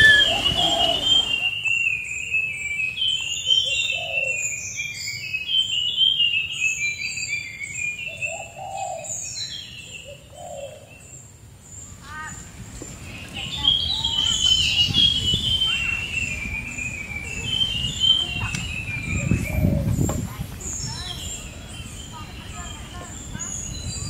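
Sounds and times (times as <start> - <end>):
short lower bird calls: 0.0 - 6.4
birds chirping and twittering: 0.0 - 24.0.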